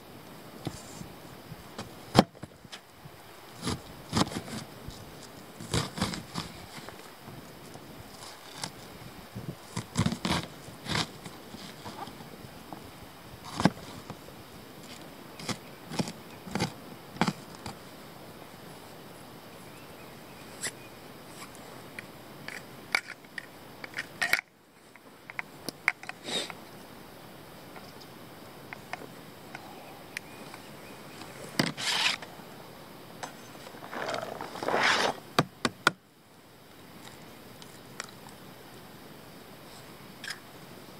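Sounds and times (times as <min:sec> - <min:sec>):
chopped onion sliding into metal bowl: 0:33.7 - 0:35.2
plastic sheet crinkling: 0:33.7 - 0:35.2.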